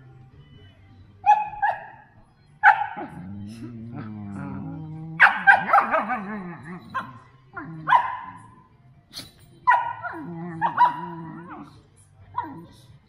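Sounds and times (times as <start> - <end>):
dogs yipping: 1.2 - 3.3, 5.2 - 8.6, 9.2 - 11.7
dogs grumbling and whining: 2.6 - 13.0.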